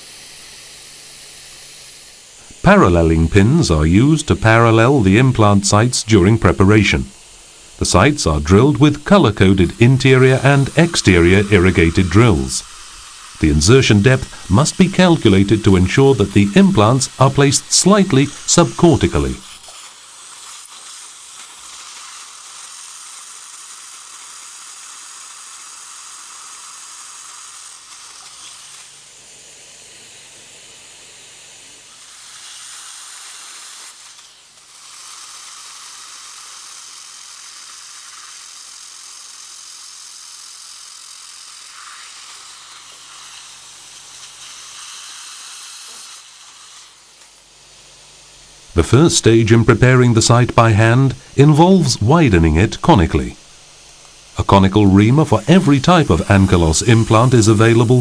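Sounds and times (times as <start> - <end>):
dental suction tip hissing: 0.0 - 58.0.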